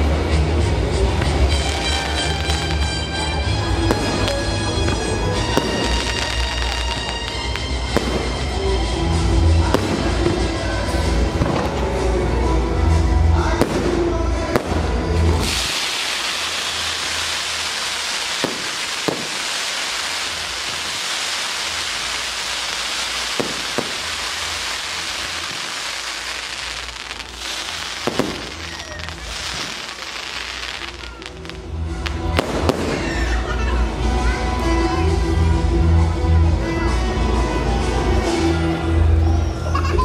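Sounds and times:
firework bangs: 1.2s - 12.0s, 13.6s - 33.5s
rockets launching with hissing rush: 14.6s - 33.1s.

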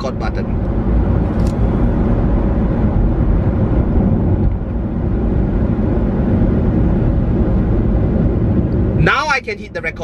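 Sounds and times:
car cabin rumble: 0.0s - 10.0s.

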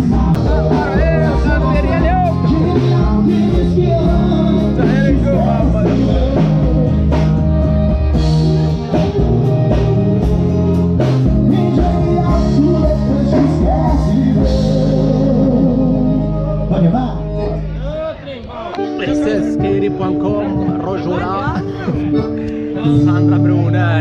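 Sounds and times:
man singing into microphone: 0.0s - 7.4s, 11.0s - 17.6s
steady beat: 0.0s - 24.0s.

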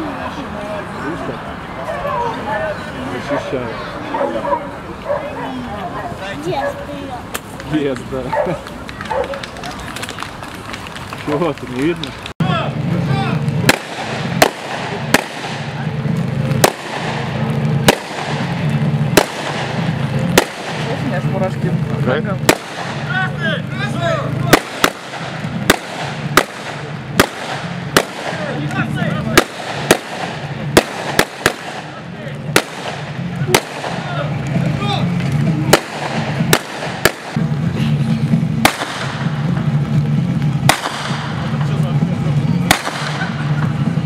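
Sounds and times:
music playing: 12.4s - 44.0s
gunshots: 13.3s - 21.3s, 22.3s - 23.4s, 24.3s - 37.5s, 38.6s - 39.7s, 40.6s - 41.6s, 42.6s - 43.9s.

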